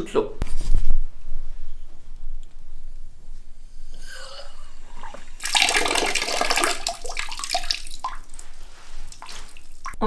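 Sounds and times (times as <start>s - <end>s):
tap water running into bucket: 5.2s - 10.0s.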